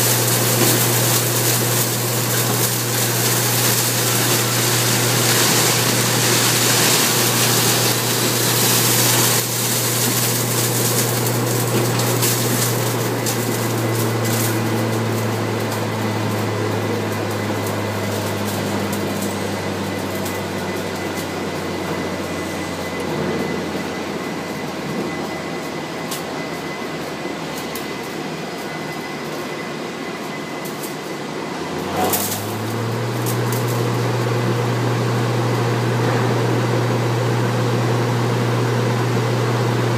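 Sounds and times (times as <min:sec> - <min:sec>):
shredding machine motor humming: 0:00.0 - 0:29.1, 0:31.4 - 0:39.9.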